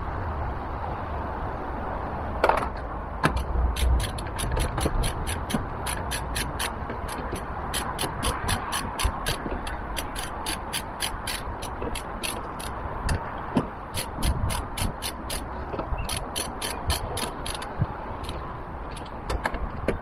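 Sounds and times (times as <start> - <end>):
socket ratchet clicking: 3.2 - 20.0.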